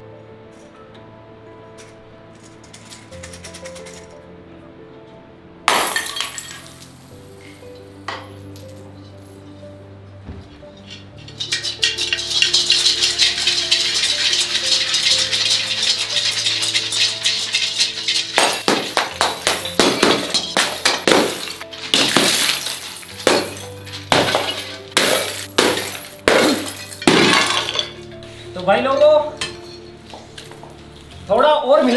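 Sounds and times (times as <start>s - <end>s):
background music: 0.0s - 31.9s
coins clinking and scattering: 1.8s - 4.1s, 5.7s - 8.9s, 10.8s - 28.0s
clay pots smashing on tiles: 5.7s - 7.1s, 10.9s - 28.0s.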